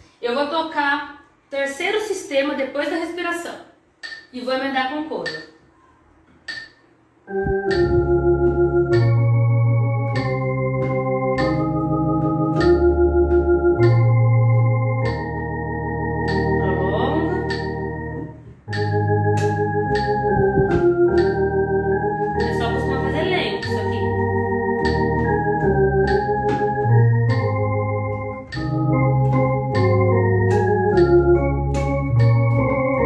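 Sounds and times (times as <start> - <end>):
metronome clicking: 4.0 - 4.3, 5.2 - 5.6, 6.4 - 15.4, 16.2 - 16.6, 17.4 - 17.9, 18.7 - 33.0
electronic organ playing a hymn: 7.3 - 33.0.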